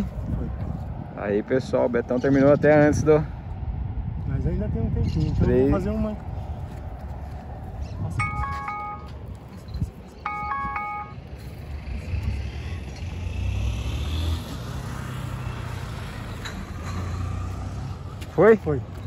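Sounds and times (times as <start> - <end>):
timer alarm chime: 8.2 - 9.2, 10.3 - 11.2
vehicle rumbling past: 11.0 - 19.0.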